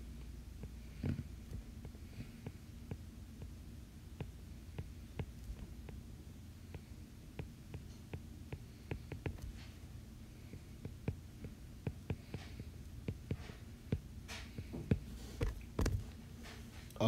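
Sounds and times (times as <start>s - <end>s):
stylus tapping on glass screen: 7.4s - 9.5s.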